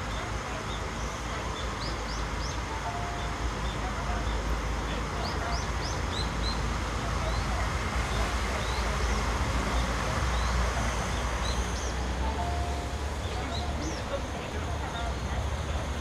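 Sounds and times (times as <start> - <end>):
train diesel engines rumbling: 0.0 - 16.0
small birds chirping: 0.1 - 15.2.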